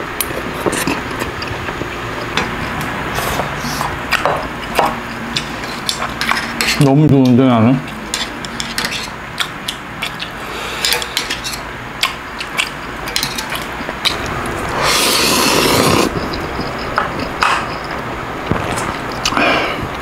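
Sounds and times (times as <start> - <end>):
slurping noodles: 14.6 - 16.6
mouth sounds: 14.7 - 17.4.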